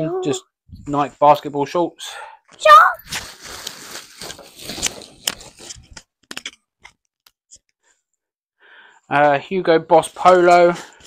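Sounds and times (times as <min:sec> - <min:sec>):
plastic sack crinkling and rustling: 0:03.0 - 0:06.0.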